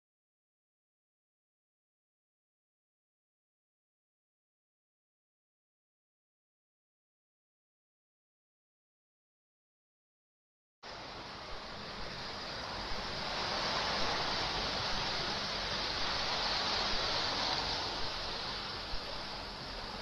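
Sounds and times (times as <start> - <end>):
ocean surf on rocky shore: 10.9 - 20.0.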